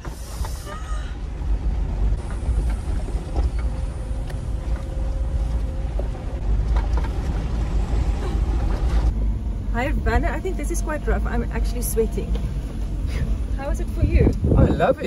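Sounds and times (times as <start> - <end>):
vehicle engine and tyres rumbling: 0.0 - 15.0.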